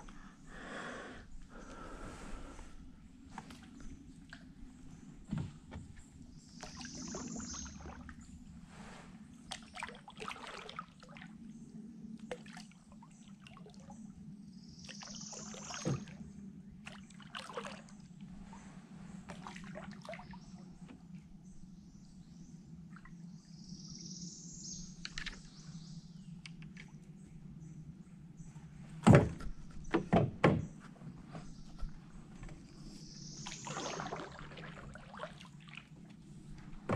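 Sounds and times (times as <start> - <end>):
steady low hum: 0.0 - 36.9
light water sounds: 2.5 - 21.5, 31.3 - 36.9.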